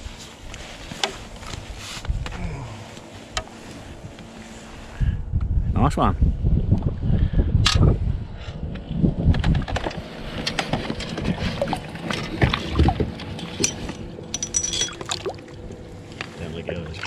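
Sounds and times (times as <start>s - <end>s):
wind buffeting microphone: 1.2s - 2.8s, 3.8s - 14.3s
gear clicking and rattling: 9.3s - 15.2s.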